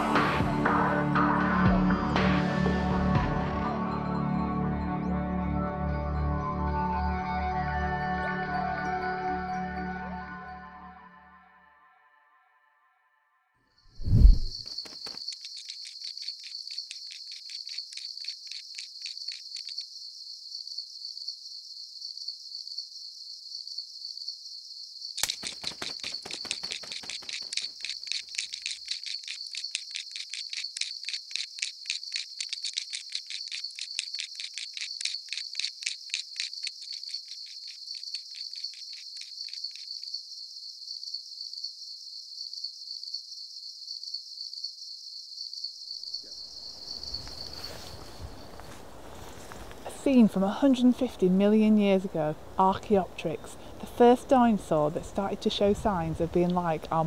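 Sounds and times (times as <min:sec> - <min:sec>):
insects chirping: 0:13.8 - 0:57.0
dense layer of chirping: 0:14.2 - 0:48.5.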